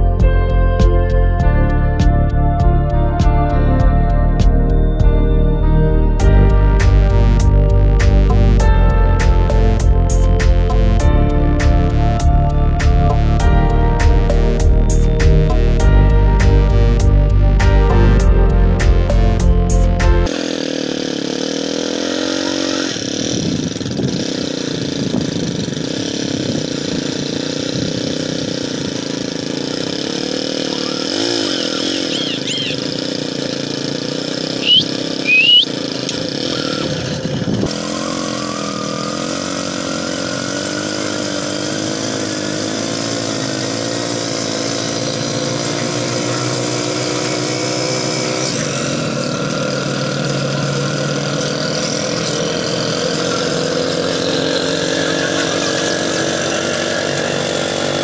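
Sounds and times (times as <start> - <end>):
motorcycle engine running: 0.0 - 58.0
high rising squeaks: 30.7 - 32.9, 34.6 - 35.7.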